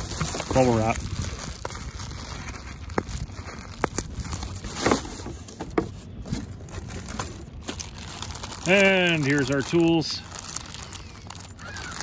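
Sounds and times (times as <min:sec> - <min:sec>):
bubble wrap sharp clicks: 0:00.0 - 0:04.5, 0:07.8 - 0:12.0
bubble wrap crinkling: 0:00.0 - 0:05.6, 0:06.2 - 0:12.0.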